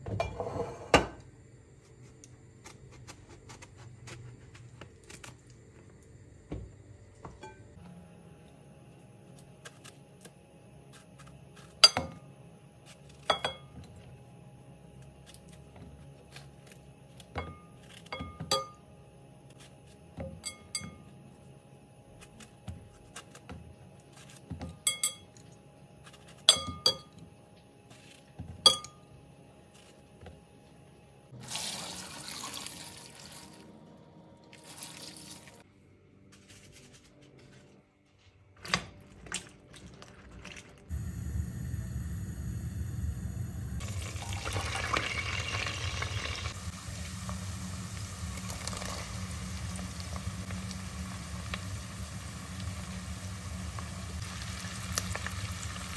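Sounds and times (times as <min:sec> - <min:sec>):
salt sprinkling hiss: 0:43.9 - 0:55.9.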